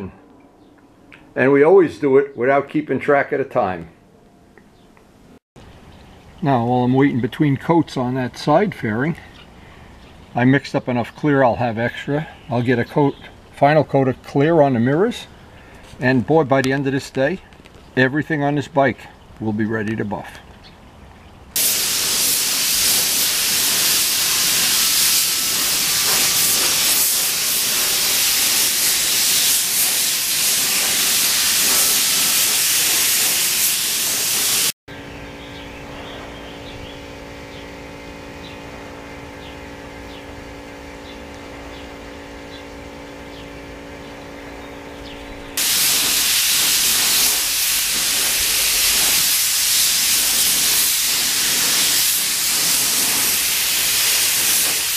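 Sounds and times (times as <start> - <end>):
spray gun hissing: 21.6 - 34.8, 45.6 - 54.9.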